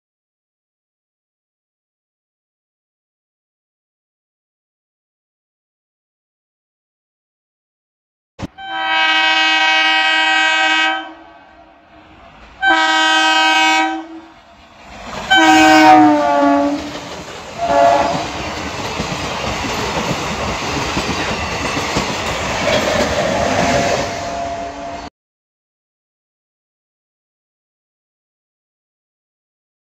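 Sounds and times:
train horn blasts: 8.5s - 11.9s, 12.6s - 14.4s, 15.3s - 16.9s, 17.6s - 18.4s, 23.9s - 25.1s
train rumble and wheel clatter: 11.6s - 25.1s.

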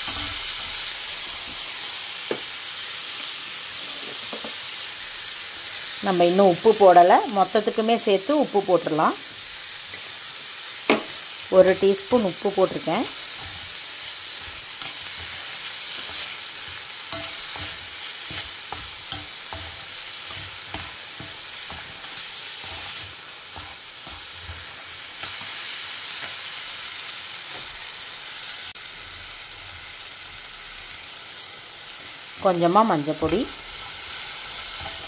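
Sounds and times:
vegetables sizzling in oil: 0.0s - 35.0s
spoon scraping metal pan: 12.6s - 25.6s.

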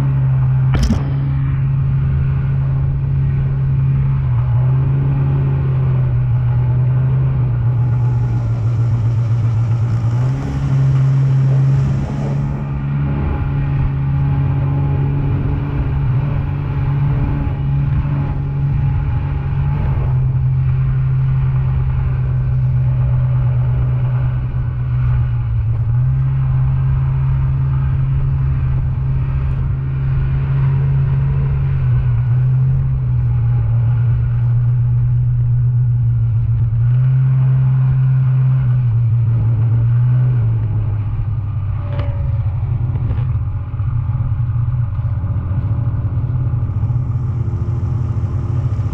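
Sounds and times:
snowmobile engine revving: 0.0s - 48.9s.

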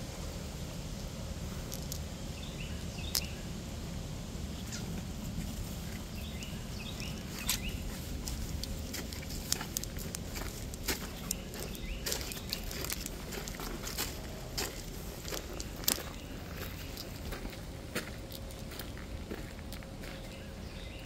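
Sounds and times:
bird chirping: 2.4s - 3.5s, 5.8s - 8.0s, 9.5s - 13.6s, 20.0s - 21.0s
footsteps on dirt trail: 5.3s - 21.0s.

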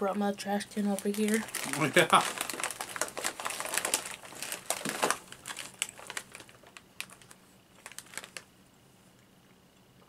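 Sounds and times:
plastic wrapper crinkling: 0.8s - 8.5s.

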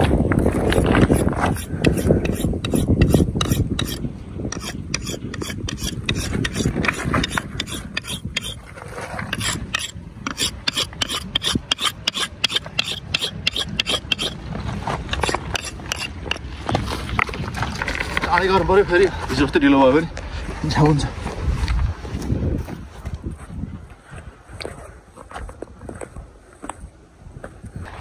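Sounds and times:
knife scraping on stone: 0.7s - 14.4s, 15.1s - 16.5s.

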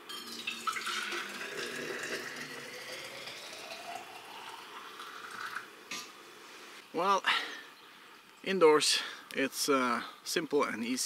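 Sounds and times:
water pouring into flask: 0.1s - 5.7s.

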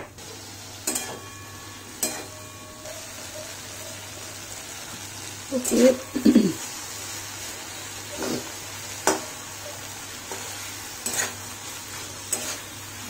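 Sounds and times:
food sizzling: 0.0s - 13.0s
spatula clinking on pan: 0.8s - 2.7s, 11.0s - 11.4s
spatula scraping metal pan: 8.1s - 9.2s, 10.3s - 11.4s.

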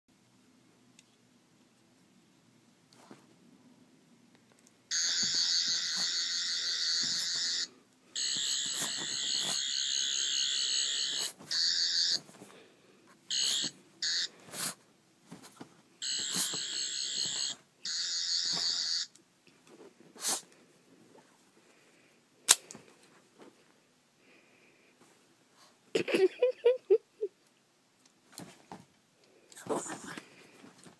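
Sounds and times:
toy electronic warbling whine: 4.9s - 12.2s, 13.3s - 14.3s, 16.0s - 19.1s
dog scuffling on bedding: 5.0s - 6.2s, 8.3s - 9.7s.

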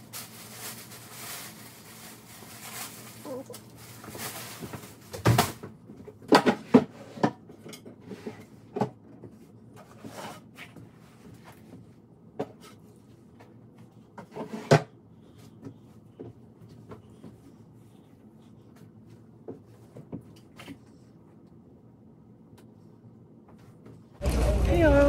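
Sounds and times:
household things knocking and clattering: 4.0s - 9.4s.

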